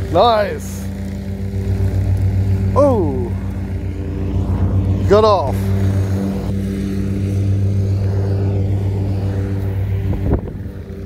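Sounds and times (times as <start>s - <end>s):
motor droning: 0.0s - 11.0s
short rising sound: 1.8s - 10.5s.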